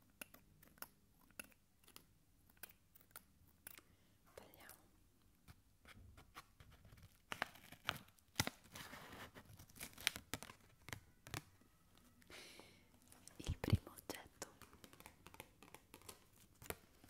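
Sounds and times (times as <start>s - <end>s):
paper crinkling and rustling: 6.1s - 12.1s, 14.6s - 17.0s.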